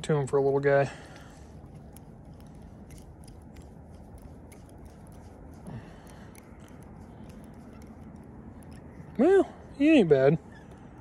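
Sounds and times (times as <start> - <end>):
hands clicking and rubbing: 1.2 - 9.2.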